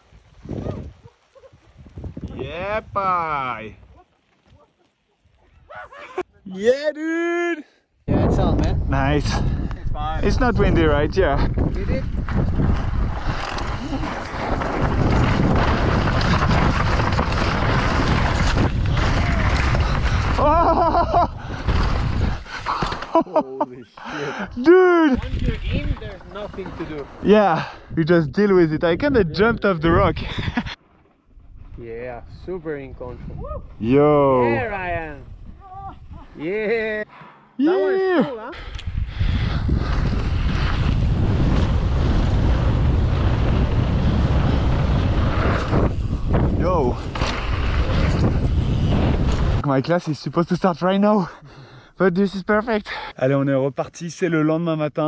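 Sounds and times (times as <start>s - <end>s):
wind rush on microphone: 0.0s - 4.0s, 8.1s - 22.6s, 25.1s - 36.4s, 38.6s - 49.7s
bike tyres rolling over dirt: 0.0s - 5.3s, 10.2s - 23.1s, 39.1s - 50.6s
tyres rumbling on dirt: 11.0s - 23.1s.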